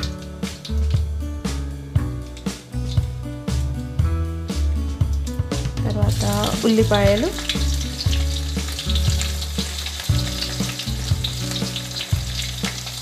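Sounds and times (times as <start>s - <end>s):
onions sizzling in hot oil: 0.0s - 1.1s, 5.3s - 13.0s.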